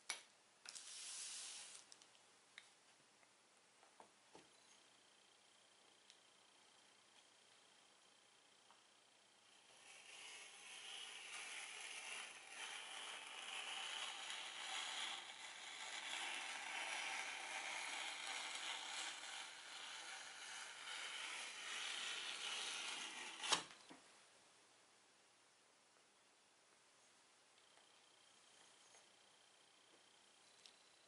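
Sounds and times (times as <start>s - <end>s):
chalk scraping on chalkboard: 0.8s - 1.8s, 9.7s - 23.6s.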